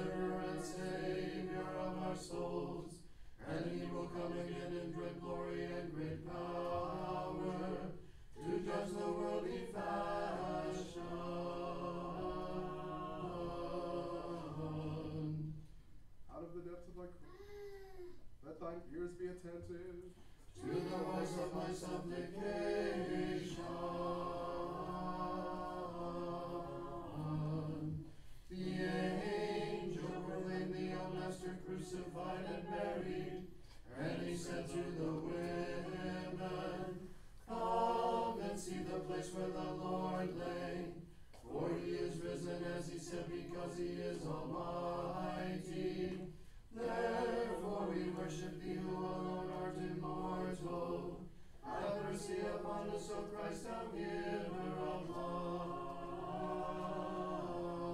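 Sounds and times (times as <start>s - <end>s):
voices chanting: 0.0s - 15.5s, 20.5s - 57.9s.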